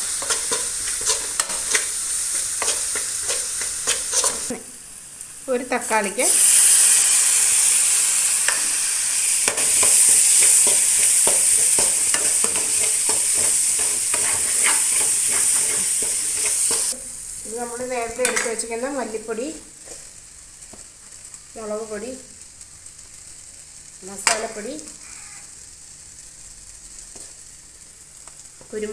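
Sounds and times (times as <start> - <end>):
steel spoon scraping a pan: 0.0 - 4.5, 6.4 - 17.0
food sizzling in a pan: 0.0 - 28.9.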